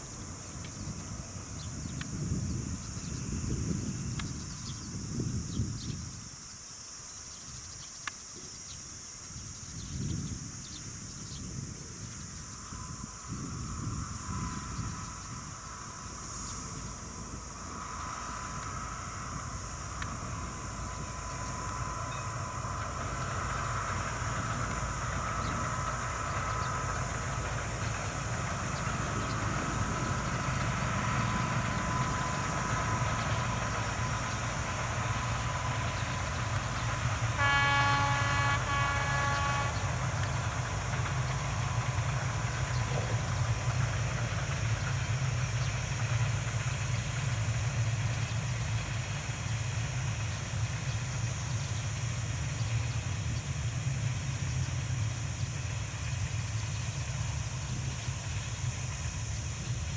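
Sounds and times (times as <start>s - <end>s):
freight train rumbling past: 0.0s - 59.9s
train horn blasts: 12.8s - 42.0s.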